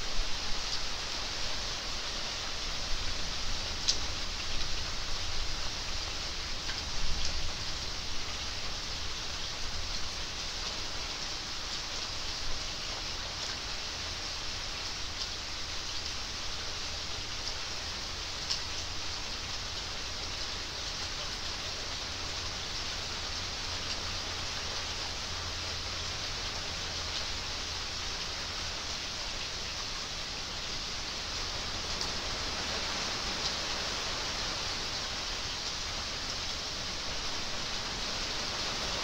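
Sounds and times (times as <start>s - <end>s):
rain falling on water and grass: 0.0s - 39.0s
single raindrops: 3.1s - 5.6s, 17.3s - 39.0s.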